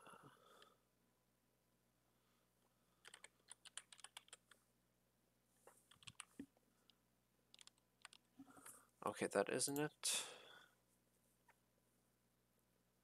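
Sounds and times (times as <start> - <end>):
faint keyboard typing: 3.0 - 4.6, 5.7 - 8.8.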